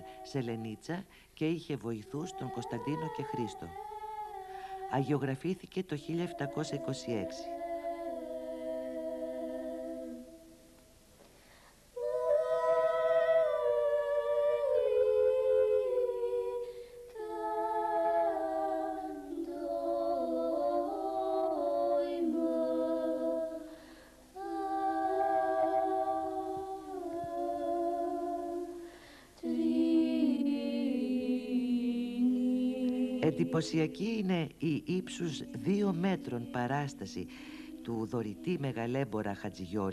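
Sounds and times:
voices chanting: 0.0 - 1.0, 4.4 - 10.3, 24.4 - 39.9.

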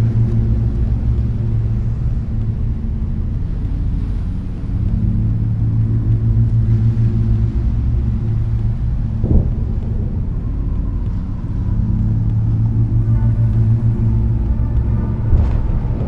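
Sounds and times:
deep steady rumble: 0.0 - 16.0
sharp thunderclap: 9.2 - 9.8.

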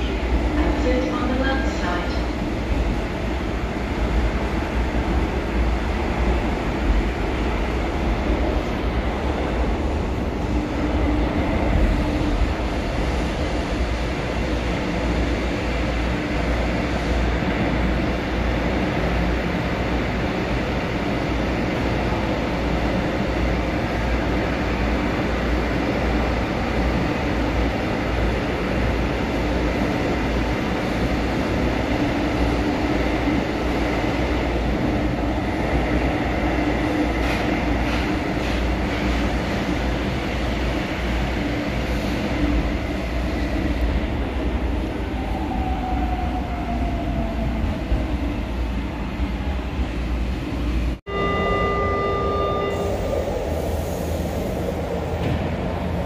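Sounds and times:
train wheels rumbling on rail: 0.0 - 51.1, 52.4 - 56.0.

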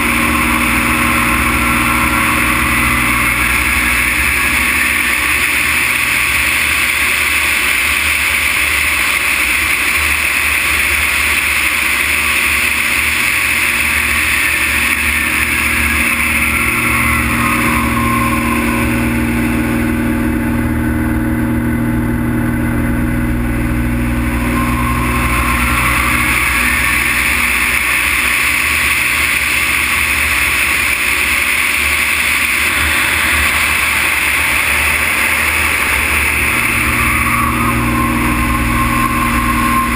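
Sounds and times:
airplane engine and propeller: 0.0 - 39.9
airflow rushing: 22.9 - 39.9.

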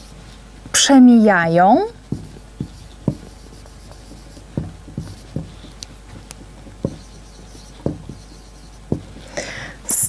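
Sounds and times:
marker squeaking on whiteboard: 2.0 - 9.4
pen knocking on board: 2.1 - 9.3.

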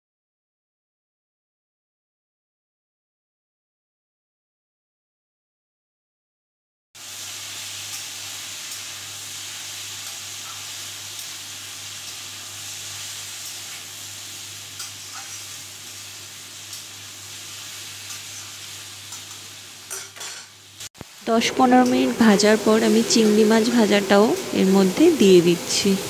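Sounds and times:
food sizzling in oil: 7.0 - 26.0.

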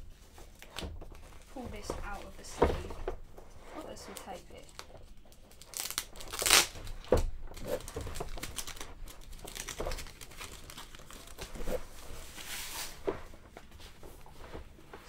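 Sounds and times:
plastic sleeve crinkling: 3.7 - 13.5
tape tearing: 4.2 - 13.0.

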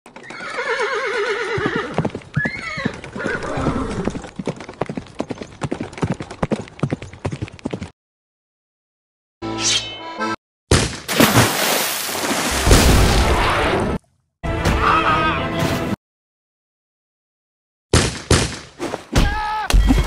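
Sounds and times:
hooves clip-clopping: 0.1 - 0.8, 1.4 - 7.9
horse whinnying: 0.2 - 4.2.

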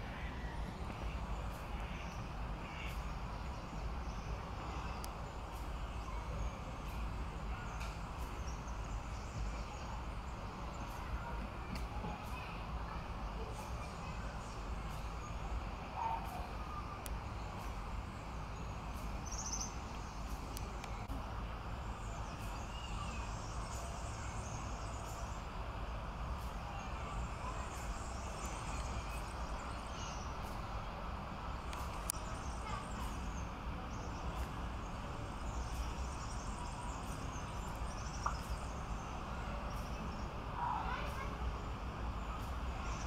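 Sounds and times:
faint bird chirps: 0.1 - 21.1.

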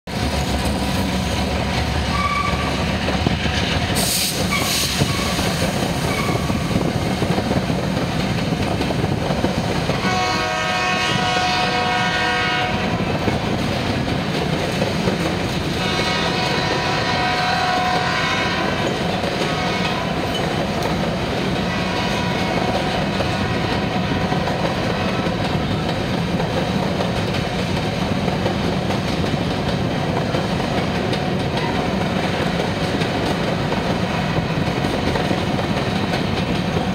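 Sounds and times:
diesel locomotive running: 0.1 - 36.9
train horn blasts: 2.1 - 2.9, 9.9 - 13.2, 15.7 - 20.3, 21.7 - 24.2.

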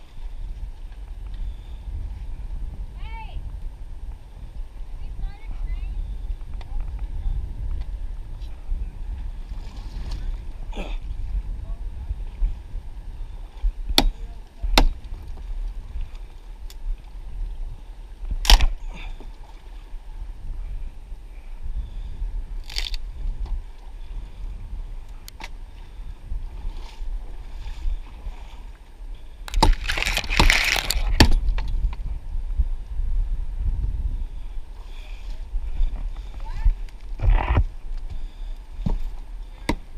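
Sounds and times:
camera handling rumble: 22.6 - 23.5, 29.4 - 32.1, 36.0 - 38.2
pine needles and twigs rustling: 25.5 - 31.8.

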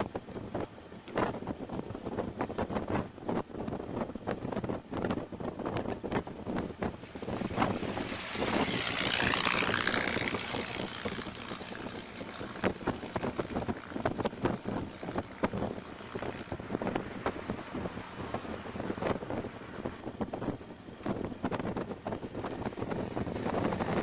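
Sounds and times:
road noise: 0.0 - 24.0
wind buffeting microphone: 0.0 - 24.0
car engine running: 6.7 - 20.0.

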